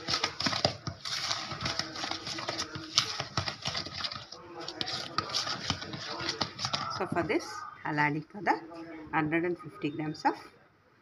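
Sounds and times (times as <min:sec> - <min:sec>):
spatula scraping plastic bowl: 0:00.0 - 0:07.6.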